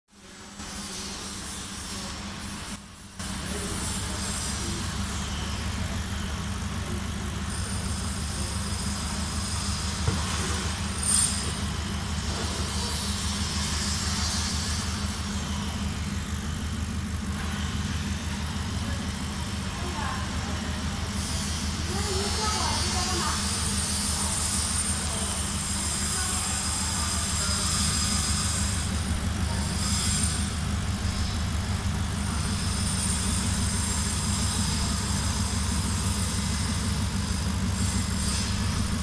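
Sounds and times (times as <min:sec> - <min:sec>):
laser engraver humming: 0:00.5 - 0:39.0
laser head high whine: 0:20.2 - 0:39.0.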